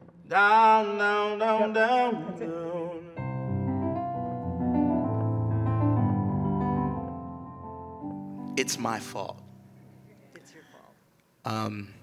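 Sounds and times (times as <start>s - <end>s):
person singing with vibrato: 0.0s - 3.3s
electric keyboard chords: 3.2s - 9.4s.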